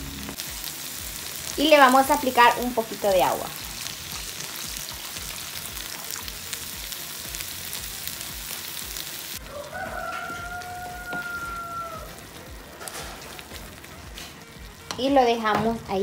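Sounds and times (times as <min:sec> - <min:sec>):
food sizzling in a frying pan: 0:00.0 - 0:16.0
rooster crowing: 0:09.4 - 0:12.3.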